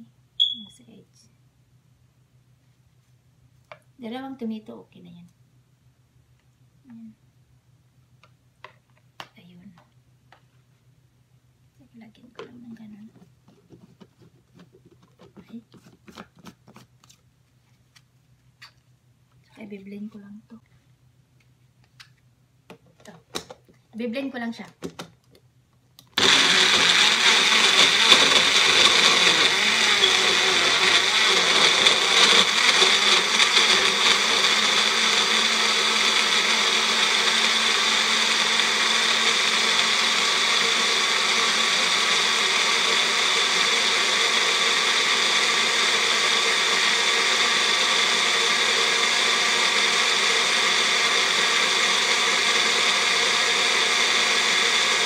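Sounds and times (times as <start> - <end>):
blender whirring: 26.2 - 55.0.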